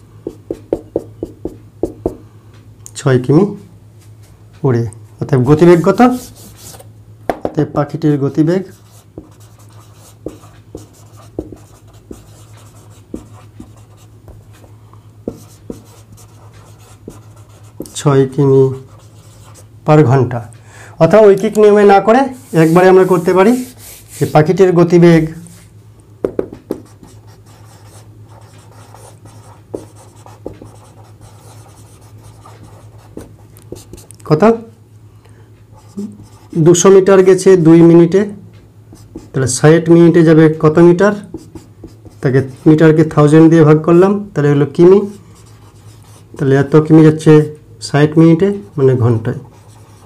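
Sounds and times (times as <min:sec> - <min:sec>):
steady low hum: 0:00.0 - 0:50.0
pen taps: 0:07.3 - 0:07.6, 0:26.2 - 0:26.8
pen scratching on paper: 0:08.8 - 0:14.1, 0:15.3 - 0:18.0, 0:18.9 - 0:19.6, 0:26.7 - 0:34.1, 0:49.5 - 0:50.0.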